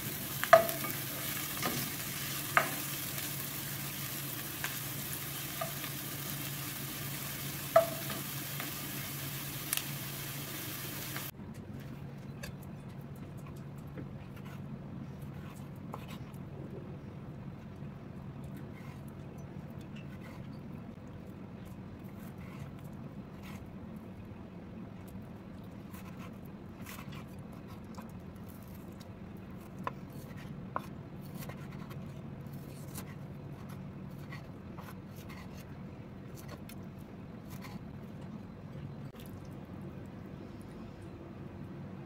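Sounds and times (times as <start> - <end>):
steady low hum: 0.0 - 19.8, 35.7 - 42.0.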